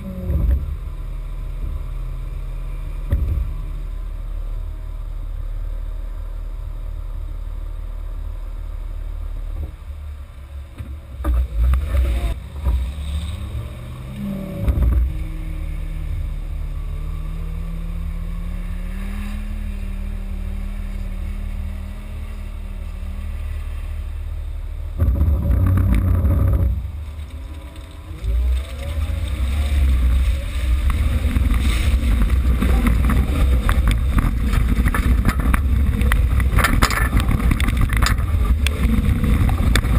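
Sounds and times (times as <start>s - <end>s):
rough rumbling bursts: 0.0s - 39.9s
vehicle engine under load: 0.0s - 39.9s.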